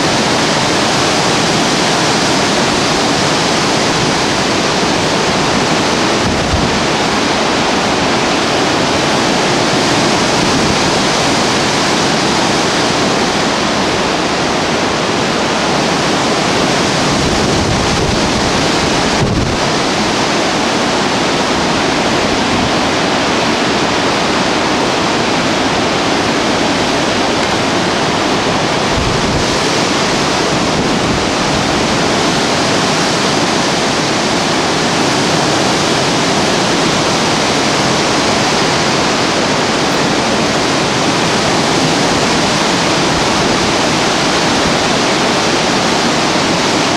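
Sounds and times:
wind buffeting microphone: 0:00.0 - 0:46.9
wind rushing through trees: 0:00.0 - 0:46.9.

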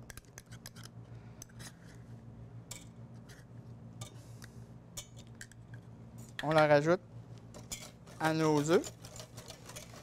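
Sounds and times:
low steady hum: 0:00.0 - 0:10.0
whisk scraping and tapping: 0:07.6 - 0:10.0.

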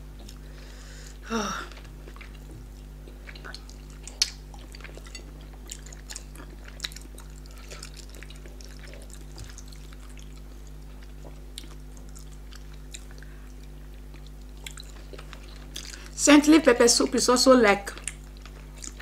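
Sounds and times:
steady low hum: 0:00.0 - 0:19.0
soft chewing: 0:01.7 - 0:16.2, 0:17.9 - 0:19.0
lip smacks: 0:03.3 - 0:05.1.

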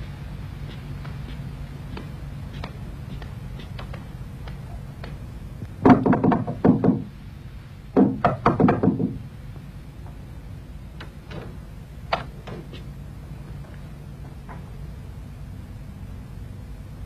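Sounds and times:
knocking on a door: 0:05.8 - 0:07.1, 0:08.0 - 0:09.2.

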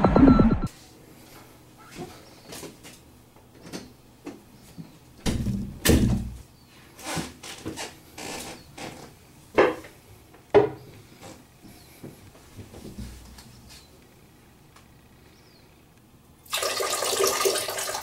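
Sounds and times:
rustling of person moving: 0:06.3 - 0:15.3.

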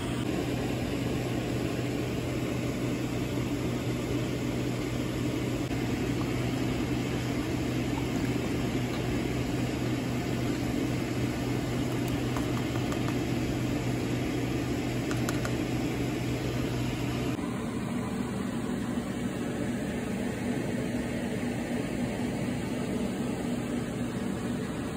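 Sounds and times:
kitchen fan humming: 0:00.0 - 0:24.9.

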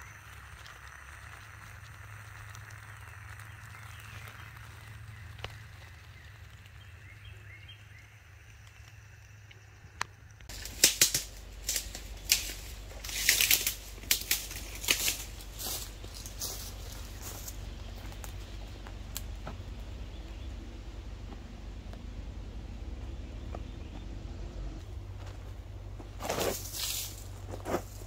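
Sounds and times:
stove burning with soft hiss: 0:00.0 - 0:23.0
footsteps crunching through leaves: 0:10.5 - 0:19.6, 0:25.1 - 0:28.0.

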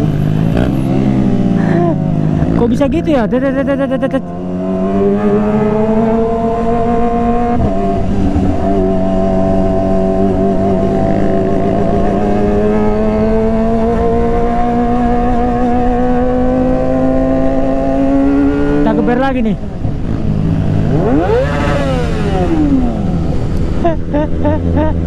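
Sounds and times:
motorcycle engine revving high: 0:00.0 - 0:25.0.

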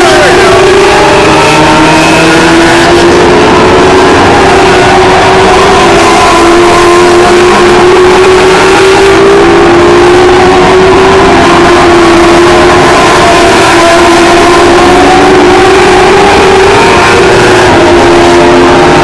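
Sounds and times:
race car engines: 0:00.0 - 0:19.0.

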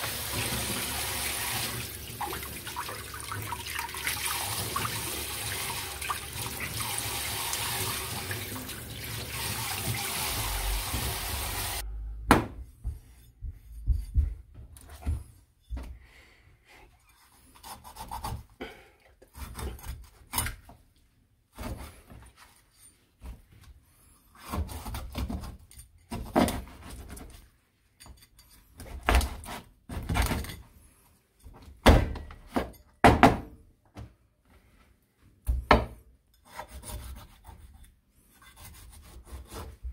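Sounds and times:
tap water running into a sink: 0:00.0 - 0:11.8
knife scraping fish scales: 0:36.3 - 0:39.8.

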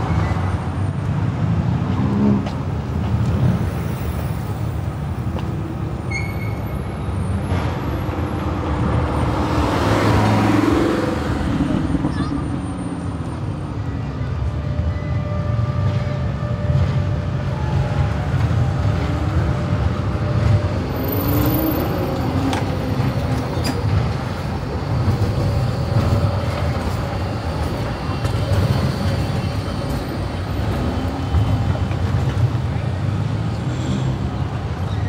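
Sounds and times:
street traffic: 0:00.0 - 0:35.0
tram rumbling past: 0:00.0 - 0:35.0.

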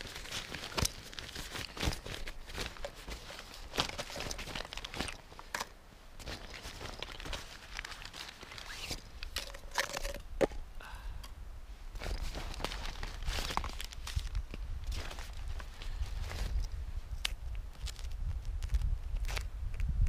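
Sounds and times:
nylon bag rustling: 0:00.0 - 0:10.2, 0:12.0 - 0:16.6.

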